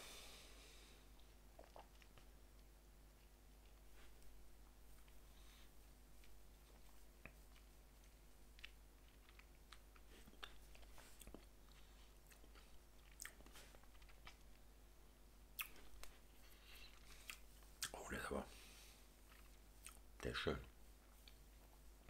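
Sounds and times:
wet mouth clicks and lip smacks: 1.6s - 2.3s, 15.6s - 16.2s.

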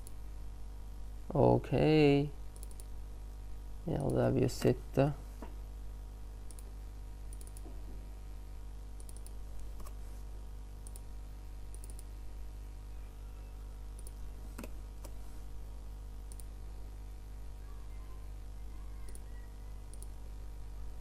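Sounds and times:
low electrical hum: 0.0s - 21.0s
computer mouse clicks: 2.5s - 2.9s, 6.5s - 6.7s, 7.3s - 7.8s, 9.0s - 10.0s, 10.8s - 11.1s, 11.7s - 12.1s, 14.0s - 15.2s, 16.2s - 16.5s, 19.0s - 19.3s, 19.9s - 20.2s.

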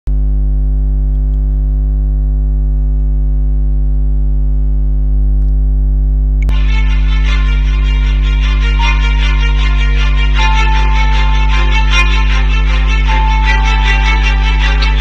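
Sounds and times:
electrical mains hum: 0.1s - 15.0s
click: 1.1s - 1.6s, 5.4s - 5.6s
music: 6.5s - 15.0s.

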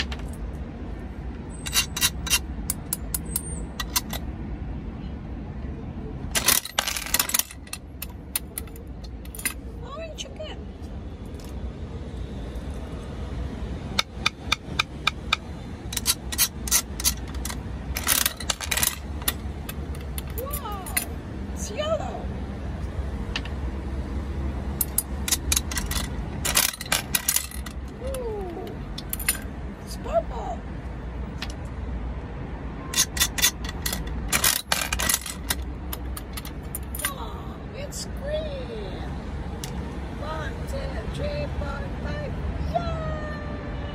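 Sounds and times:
crank mechanism clicking: 13.9s - 21.1s, 24.8s - 28.0s, 32.9s - 37.1s.

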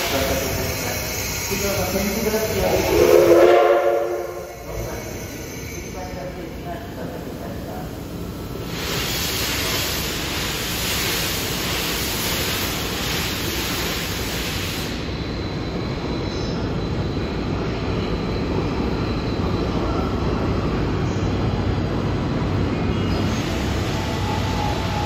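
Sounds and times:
steam hissing from locomotive: 0.0s - 15.4s, 23.2s - 25.0s
train rumbling past: 0.0s - 25.0s.

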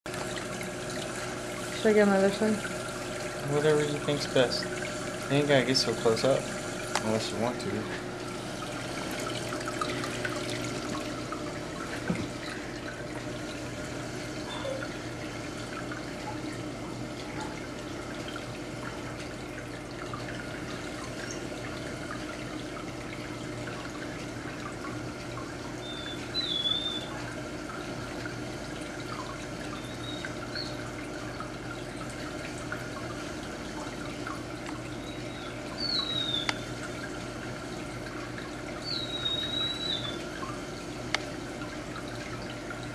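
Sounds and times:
aquarium pump hum: 0.1s - 42.9s
water trickling and splashing: 0.1s - 42.9s.

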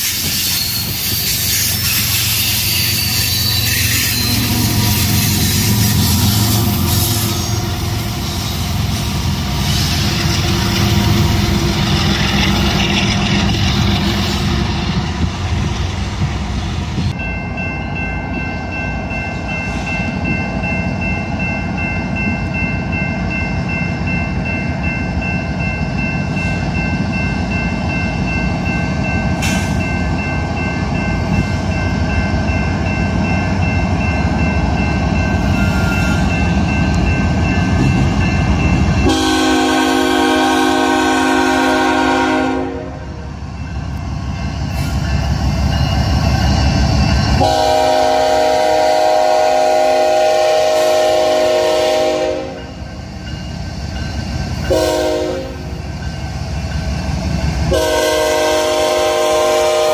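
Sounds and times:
freight train rumbling: 0.0s - 59.9s
locomotive horn chord: 39.0s - 43.3s, 47.4s - 52.7s, 54.7s - 55.7s, 57.7s - 59.9s.

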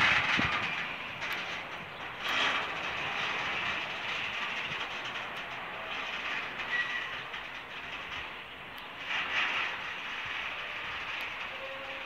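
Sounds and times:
train wheels rolling on track: 0.0s - 12.0s
high wheel squeal: 6.3s - 7.3s.

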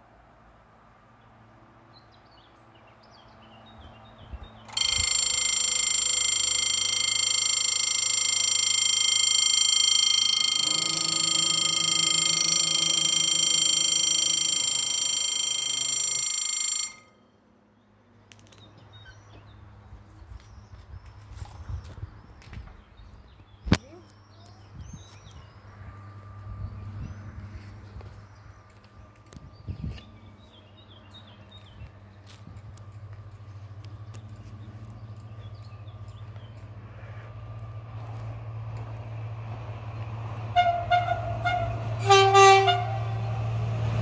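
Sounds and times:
low hum: 4.4s - 17.9s, 24.8s - 44.0s
warning bell ringing: 4.7s - 17.4s.

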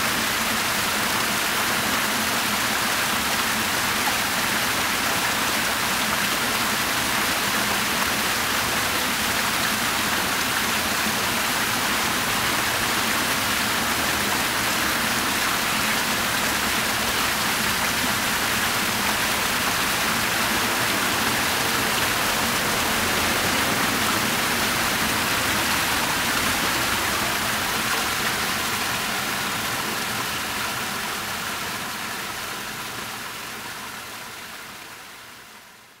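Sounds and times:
fountain water splashing: 0.0s - 36.0s.

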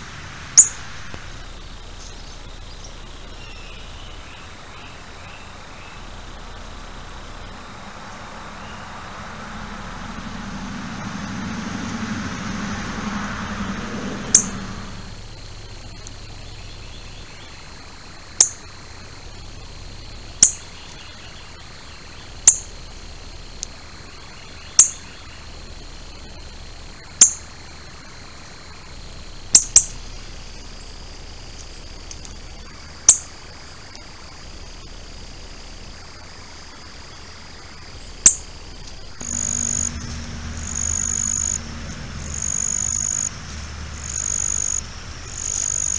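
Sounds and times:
low rumble: 6.0s - 17.2s, 39.2s - 45.9s
bird chip calls: 39.2s - 41.6s, 44.0s - 45.9s.

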